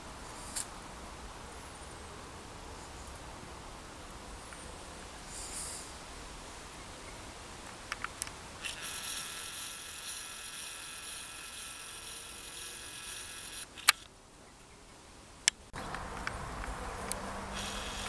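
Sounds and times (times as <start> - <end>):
camcorder zoom motor whine: 8.6 - 14.0, 17.6 - 18.0
sharp click: 13.7 - 14.1.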